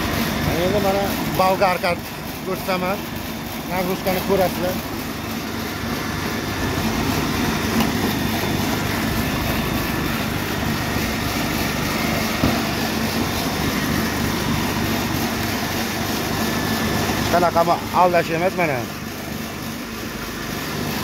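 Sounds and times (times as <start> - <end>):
electric motor running: 0.0 - 21.0.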